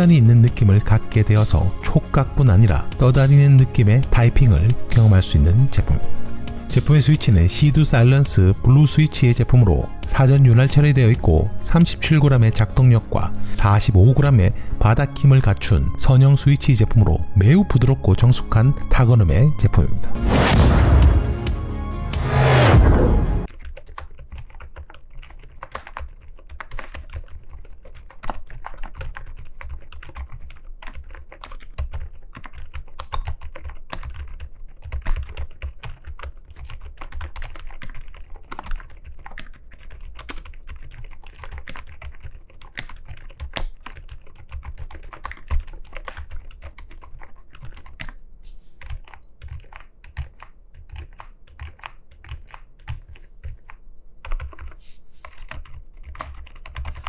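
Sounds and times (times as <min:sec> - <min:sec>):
mechanical keyboard typing: 0:23.5 - 0:48.2, 0:48.8 - 0:57.0.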